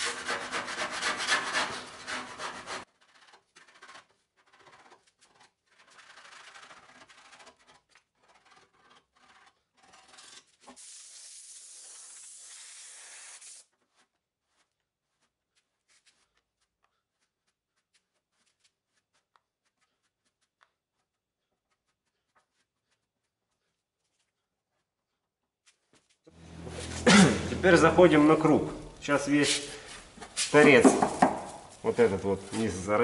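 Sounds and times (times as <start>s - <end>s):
sanding block scraping: 0.0s - 13.6s
compressed air hissing: 10.7s - 13.6s.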